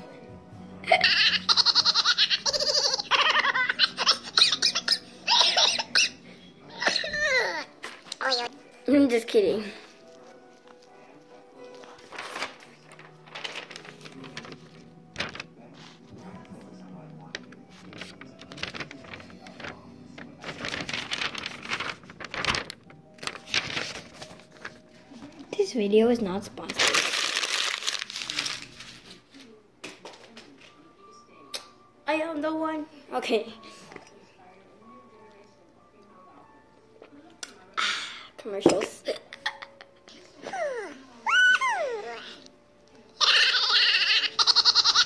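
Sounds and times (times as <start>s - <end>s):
girl laughing: 0.8s - 6.1s
paper rustling and crinkling: 9.8s - 16.6s, 17.2s - 25.5s, 26.5s - 30.8s.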